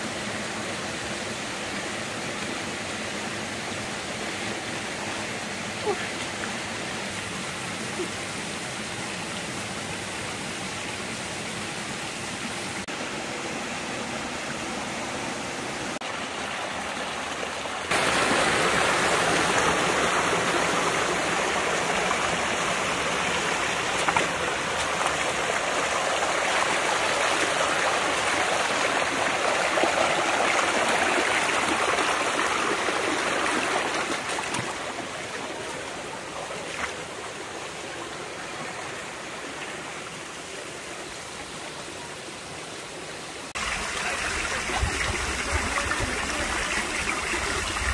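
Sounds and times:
stream splashing over stones: 0:14.2 - 0:47.9.

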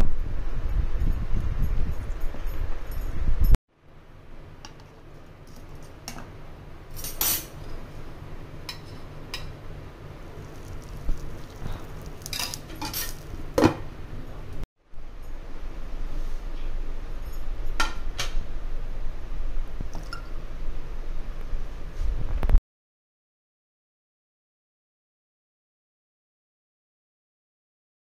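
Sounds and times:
steel bowl and lid clinking: 0:10.4 - 0:13.4.

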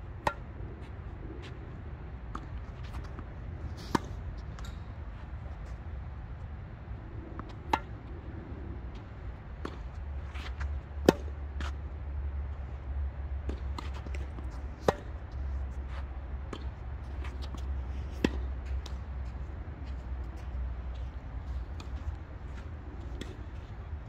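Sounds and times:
tennis ball bouncing: 0:00.2 - 0:01.6, 0:07.4 - 0:08.0, 0:10.6 - 0:11.8, 0:13.4 - 0:15.2, 0:16.5 - 0:19.5, 0:23.0 - 0:23.5
tennis ball hit by racket: 0:07.4 - 0:08.0.

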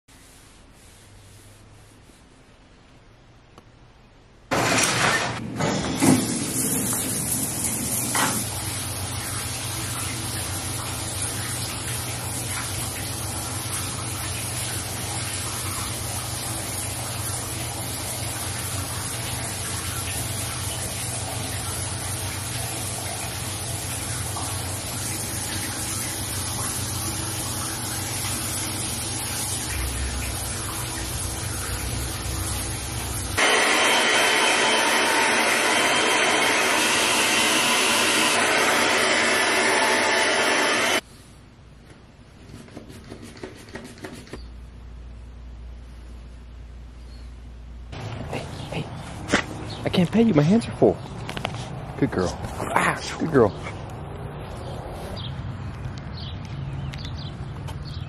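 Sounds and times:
shower water spraying: 0:06.0 - 0:41.1.

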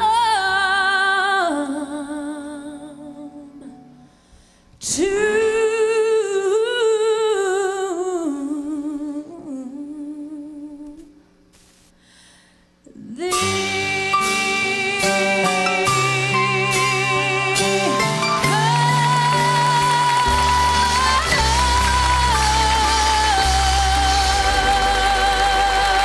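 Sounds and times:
woman singing a hymn: 0:00.0 - 0:03.9, 0:04.8 - 0:11.2, 0:12.9 - 0:26.0
instrumental accompaniment: 0:13.3 - 0:26.0.

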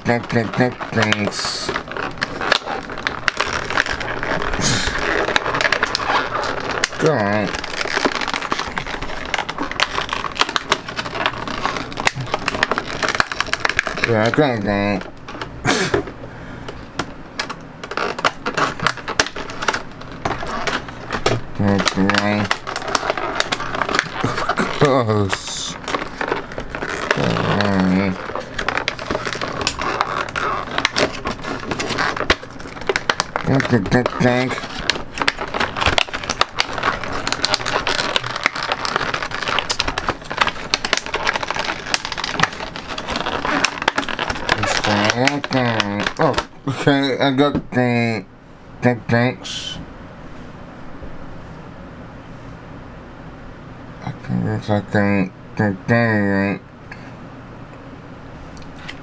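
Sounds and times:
plastic packaging crinkling: 0:00.0 - 0:15.9, 0:17.0 - 0:47.5.

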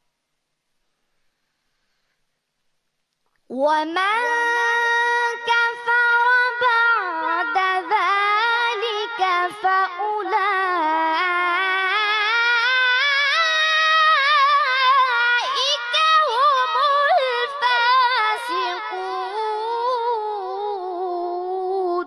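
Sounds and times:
boy reciting melodically: 0:03.5 - 0:22.0.

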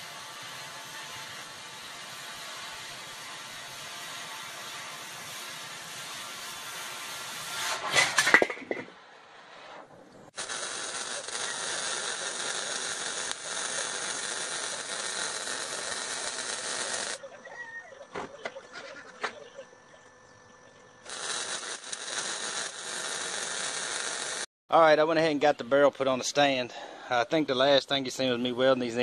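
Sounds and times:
arc welding hiss: 0:00.0 - 0:07.6, 0:10.3 - 0:17.2, 0:21.1 - 0:24.5
angle grinder cutting steel: 0:10.4 - 0:17.2, 0:21.1 - 0:24.5.

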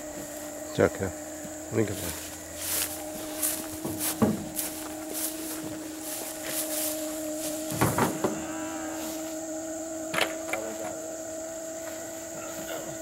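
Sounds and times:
mechanical hum: 0:00.0 - 0:13.0
loud rustling knock: 0:03.8 - 0:04.8, 0:07.7 - 0:08.4.

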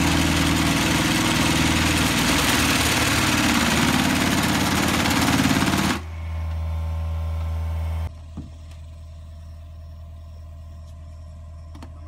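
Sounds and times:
vibratory pile driver rattling: 0:00.0 - 0:06.2
diesel engine running: 0:00.0 - 0:12.0.

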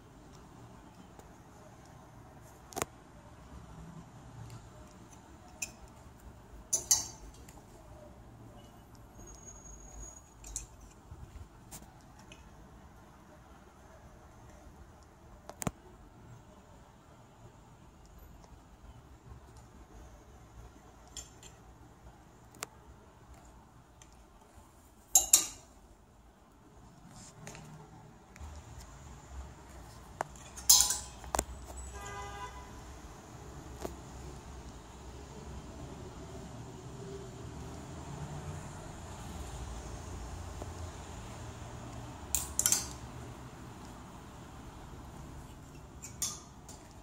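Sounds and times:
hangers clinking on metal rail: 0:06.7 - 0:07.6, 0:10.0 - 0:11.0, 0:25.1 - 0:25.7, 0:30.3 - 0:32.1, 0:42.3 - 0:43.1, 0:45.6 - 0:47.0
phone rustling against clothes: 0:26.8 - 0:29.0.

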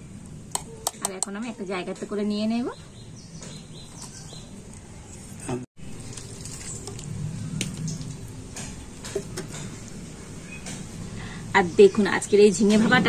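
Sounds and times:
wet mash squishing: 0:05.8 - 0:10.0.

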